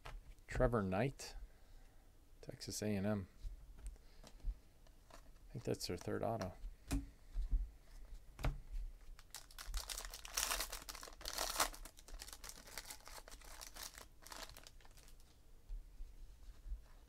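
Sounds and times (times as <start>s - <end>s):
foil wrapper crinkling: 9.1s - 15.3s.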